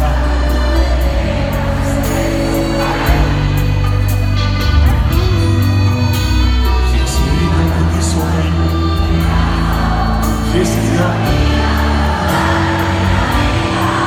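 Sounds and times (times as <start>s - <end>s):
live band playing pop song: 0.0s - 14.0s
man singing into microphone: 6.6s - 14.0s.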